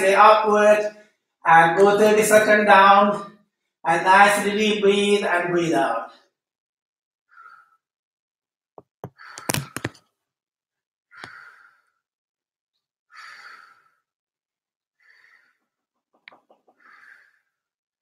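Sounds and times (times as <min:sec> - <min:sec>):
man breathing out slowly: 0:07.3 - 0:07.8, 0:11.2 - 0:12.0, 0:13.1 - 0:14.1, 0:15.0 - 0:15.7, 0:16.8 - 0:17.6
sharp knocks and thumps: 0:08.8 - 0:10.0.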